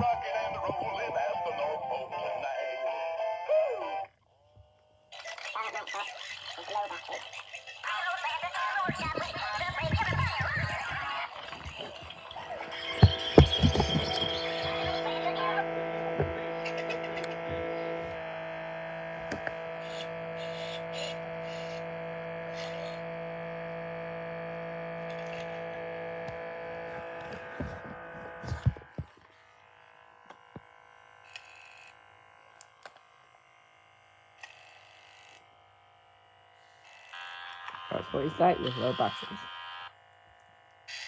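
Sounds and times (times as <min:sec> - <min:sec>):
toy motor drone with tones: 0:00.0 - 0:41.0
handling knocks: 0:08.8 - 0:15.3, 0:16.1 - 0:16.7.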